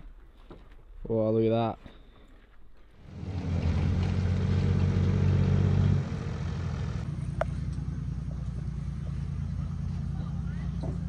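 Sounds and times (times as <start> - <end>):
engine running: 3.0 - 11.0.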